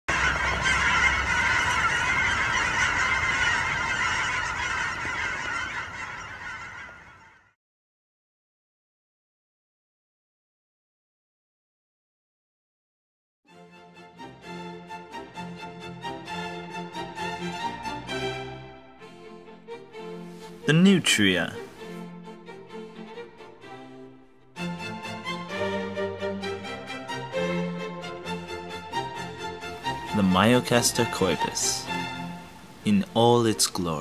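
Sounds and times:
waterfowl flock calling: 0:00.1 - 0:07.6, 0:24.6 - 0:34.0
instrumental string music: 0:13.5 - 0:34.0.

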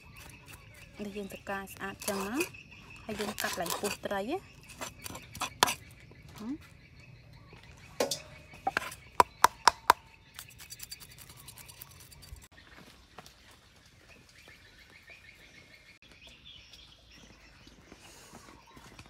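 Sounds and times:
knife scraping fish scales: 0:01.9 - 0:02.5, 0:03.1 - 0:05.9, 0:10.4 - 0:12.5.

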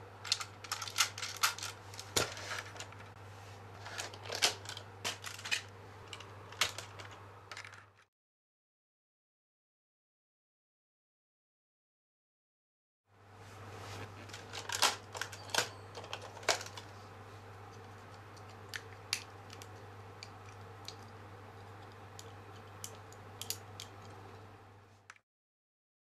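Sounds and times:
steady low hum: 0:00.0 - 0:08.0, 0:13.1 - 0:25.2
plastic toy parts clicking: 0:00.2 - 0:01.8, 0:21.8 - 0:24.1.

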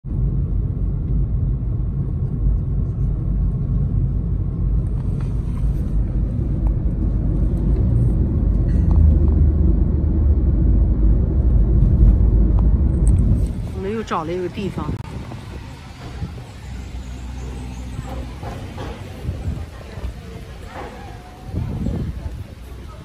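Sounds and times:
car engine and tyre rumble: 0:00.0 - 0:23.0.

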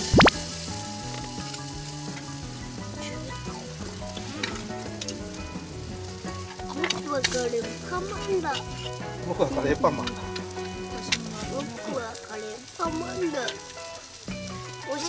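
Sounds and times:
falling sweeping sound: 0:00.0 - 0:00.4
food sizzling on grill: 0:00.0 - 0:15.0.

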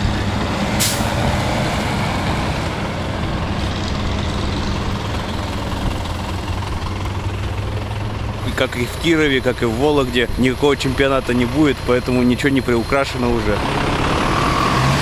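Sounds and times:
bus engine running: 0:00.0 - 0:15.0
short hiss: 0:00.8 - 0:01.2.

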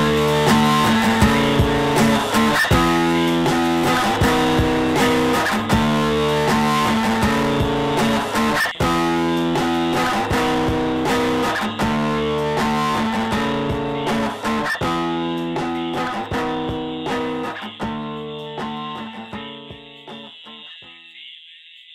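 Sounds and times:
guitar chords strummed: 0:00.0 - 0:21.2.

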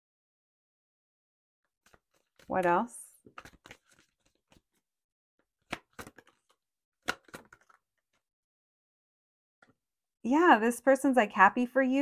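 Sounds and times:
playing cards clicking: 0:03.3 - 0:04.8, 0:05.7 - 0:07.8.

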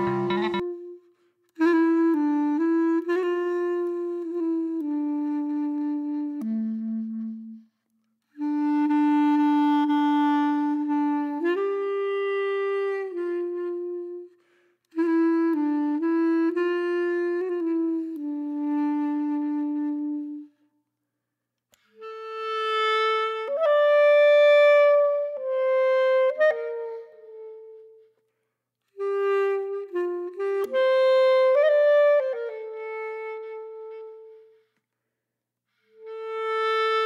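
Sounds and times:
solo wind instrument melody: 0:00.0 - 0:20.6, 0:21.8 - 0:28.3, 0:28.9 - 0:34.7, 0:35.8 - 0:37.0.

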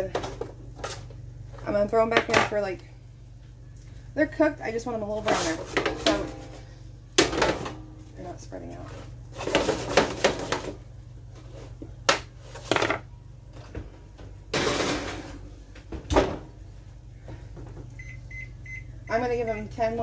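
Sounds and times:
metal spoon scraping baking sheet: 0:05.2 - 0:06.3.

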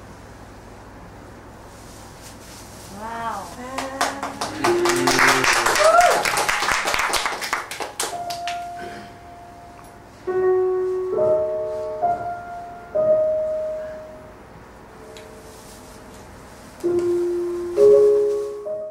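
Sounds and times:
applause: 0:03.7 - 0:08.7
slow sparse piano melody: 0:08.1 - 0:18.9.

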